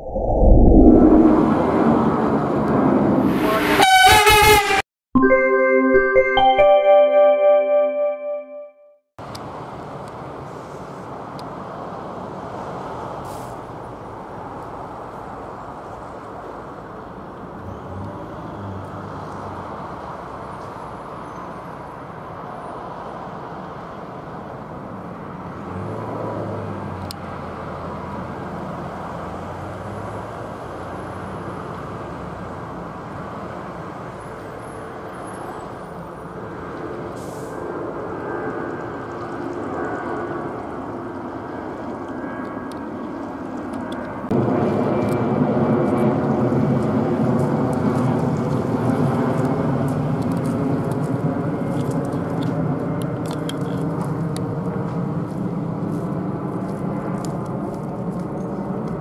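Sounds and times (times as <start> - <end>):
jet engines rumbling overhead: 0.0 - 3.8, 34.8 - 59.0
road traffic hum: 1.1 - 4.8, 9.2 - 59.0.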